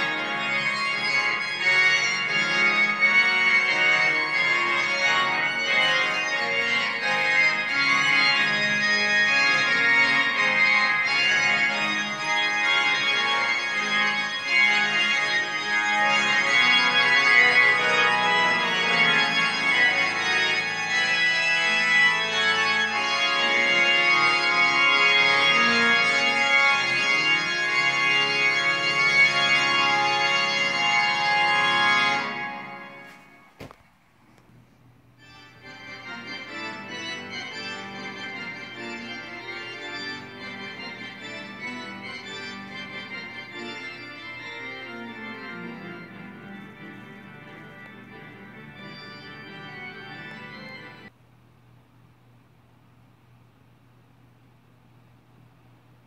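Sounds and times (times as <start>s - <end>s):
organ-like held chords: 0.0s - 33.6s, 35.2s - 51.1s.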